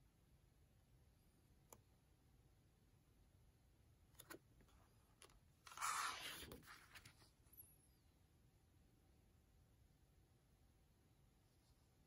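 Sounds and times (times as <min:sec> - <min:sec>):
book pages rustling: 0:04.2 - 0:07.4
page turning swish: 0:05.7 - 0:07.2.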